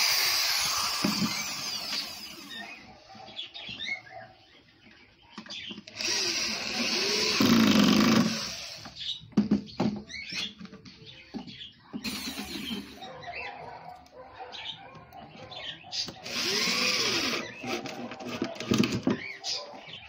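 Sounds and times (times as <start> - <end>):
cordless drill driving screws: 0.0 - 2.8, 5.9 - 9.0, 12.0 - 13.0, 16.1 - 19.0.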